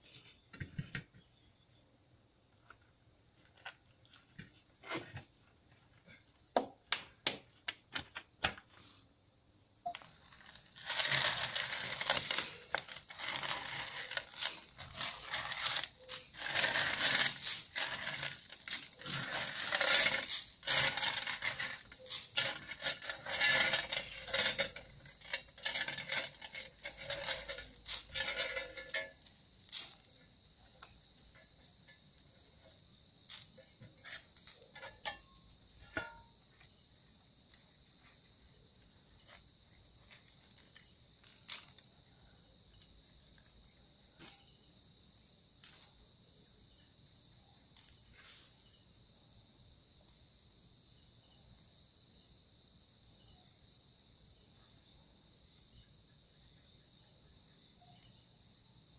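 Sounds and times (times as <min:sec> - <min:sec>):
gravel scraping on tile: 0:09.9 - 0:35.2.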